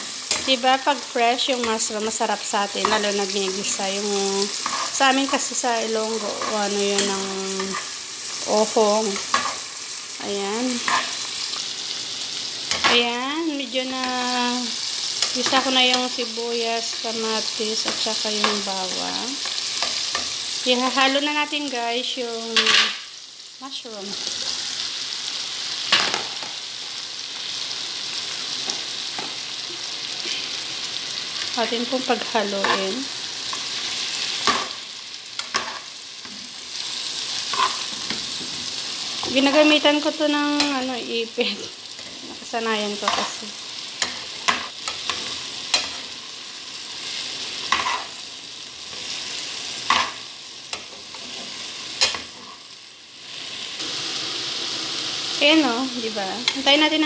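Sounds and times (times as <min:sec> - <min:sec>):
mushrooms sizzling in a frying pan: 0:00.0 - 0:57.0
metal tongs clicking on pan: 0:44.0 - 0:46.0, 0:52.0 - 0:52.3.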